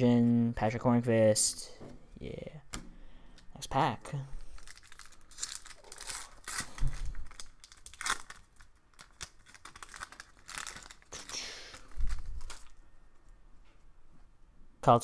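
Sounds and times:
foil wrapper crinkling and tearing: 4.4 - 12.8.

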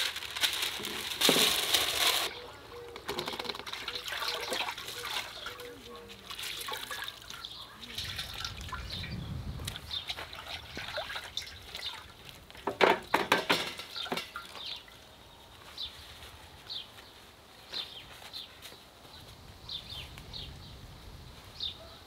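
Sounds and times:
paper wrapping crinkling: 0.0 - 3.3.

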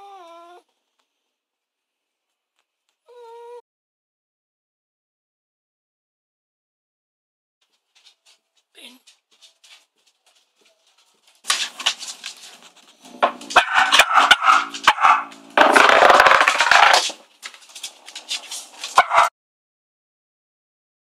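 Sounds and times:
dogs barking and growling: 12.2 - 17.1, 18.3 - 19.3
wooden top knocking on floorboards: 13.1 - 17.2.

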